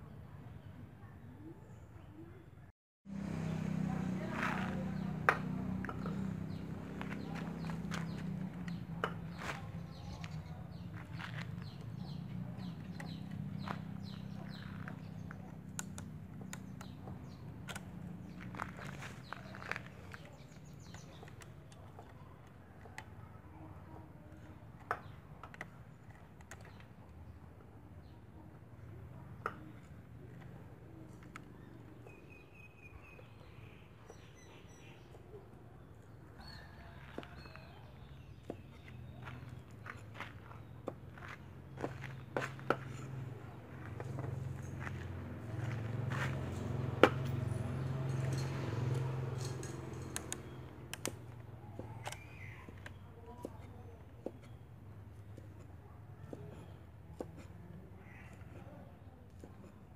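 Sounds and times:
low outdoor background noise: 0.0s - 59.9s
bird chirping: 31.5s - 45.8s.

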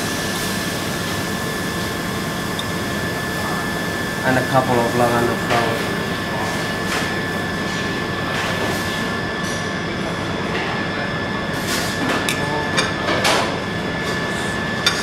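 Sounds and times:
fan-like kitchen noise: 0.0s - 15.0s.

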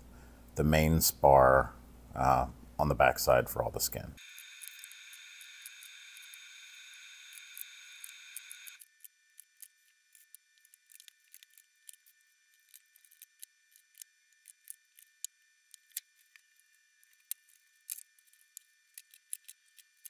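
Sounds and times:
small metallic clicks: 7.3s - 20.0s.

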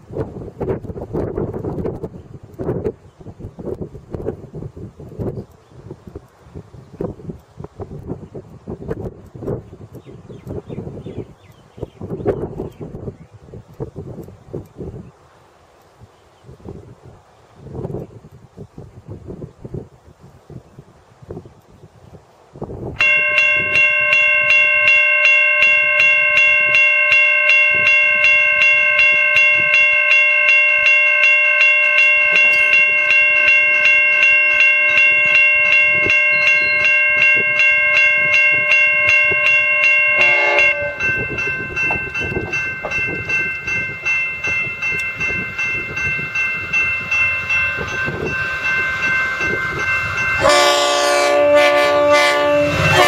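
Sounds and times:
level crossing bell ringing: 23.0s - 53.0s
diesel locomotive horn: 23.2s - 42.5s, 48.6s - 53.0s.

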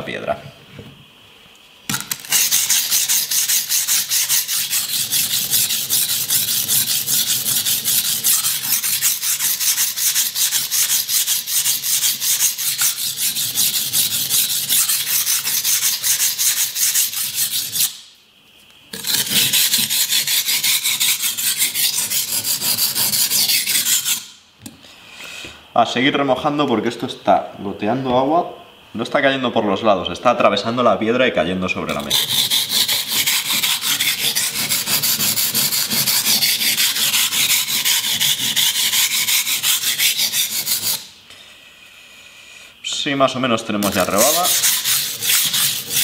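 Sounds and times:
knife scraping on whetstone: 2.2s - 18.0s, 18.9s - 24.3s, 31.9s - 41.1s, 43.8s - 46.0s.

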